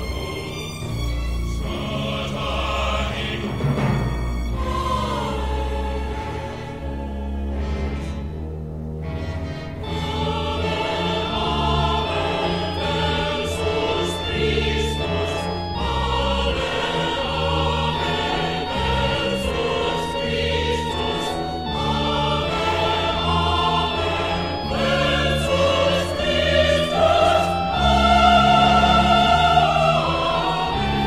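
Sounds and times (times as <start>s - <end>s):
choir singing sustained chords: 0.0s - 31.0s
orchestra: 0.0s - 31.0s.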